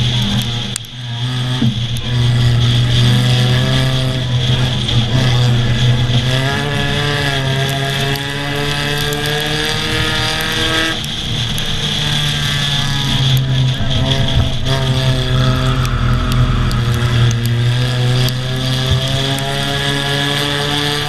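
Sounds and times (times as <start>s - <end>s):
race car engines: 0.0s - 21.0s
road and wind rumble: 0.0s - 21.0s.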